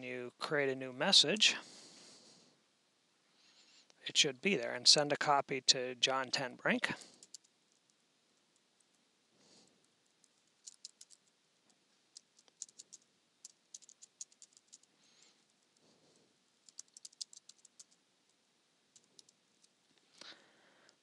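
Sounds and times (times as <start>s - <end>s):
typing on computer keyboard: 7.0s - 8.0s, 10.2s - 11.3s, 12.1s - 14.9s, 16.6s - 18.0s, 18.9s - 19.7s.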